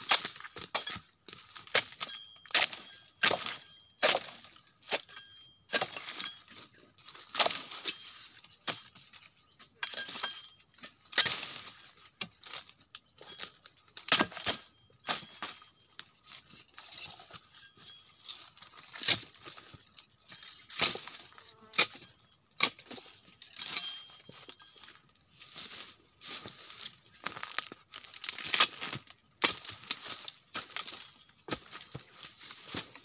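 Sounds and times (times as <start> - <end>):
chisel chopping palm fronds: 0.0 - 6.4, 7.3 - 9.0, 11.1 - 12.7, 13.3 - 15.6, 18.9 - 19.6, 20.3 - 24.2, 27.2 - 32.9
high insect drone: 0.0 - 33.0
dry fronds crackling: 23.6 - 33.0.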